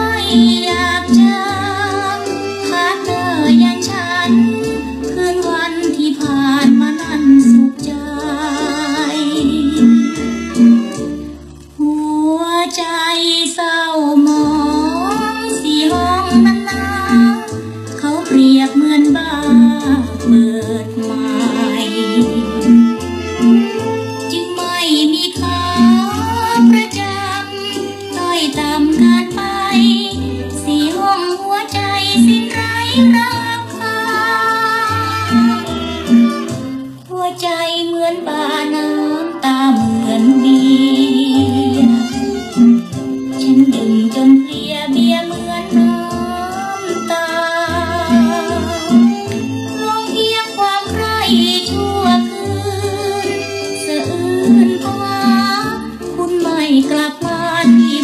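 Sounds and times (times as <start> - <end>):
woman singing: 0.0 - 11.0, 11.8 - 36.5, 37.1 - 58.0
band accompaniment: 0.0 - 11.8, 14.5 - 31.2, 32.2 - 37.0, 39.2 - 58.0
woman singing long notes: 6.5 - 10.8, 38.1 - 42.8.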